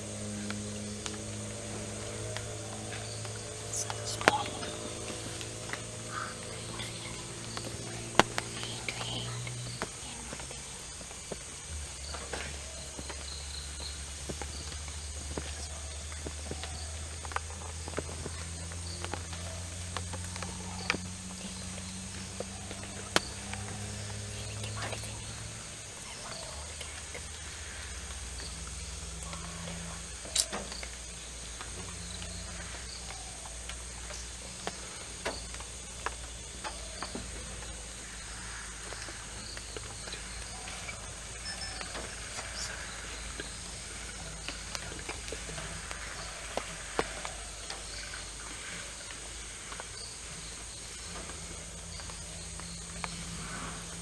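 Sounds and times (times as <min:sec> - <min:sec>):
insect drone: 0:00.0 - 0:54.0
low hum: 0:00.0 - 0:54.0
twigs snapping: 0:00.2 - 0:37.8.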